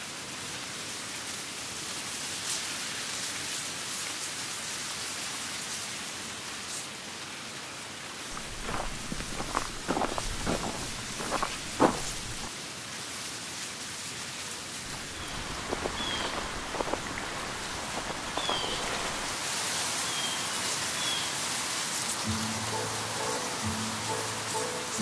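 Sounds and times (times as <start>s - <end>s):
river rushing: 8.3s - 12.5s, 14.9s - 20.6s
high bird chirps: 14.9s - 19.4s.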